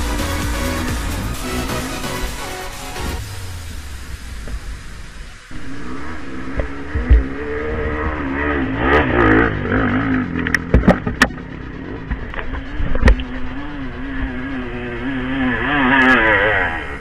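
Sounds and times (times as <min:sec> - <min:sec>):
motorcycle engines revving: 0:00.0 - 0:17.0.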